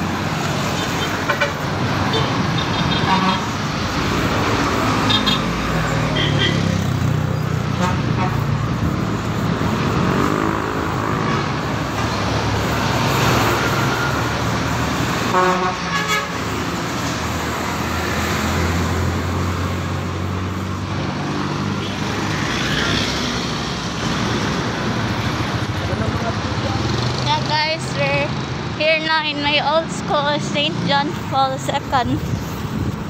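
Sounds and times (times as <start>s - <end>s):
vehicle engines passing: 0.0s - 33.0s
car horn toot: 15.3s - 16.4s.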